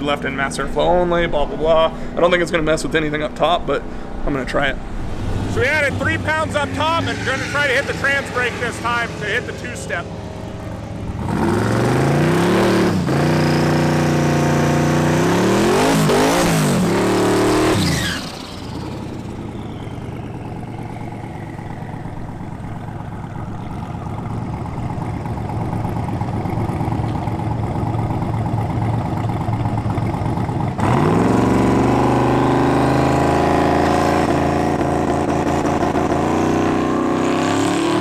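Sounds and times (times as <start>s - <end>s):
car engine lumpy idle: 0.0s - 12.1s, 18.2s - 30.8s
car engine revving: 3.1s - 38.0s.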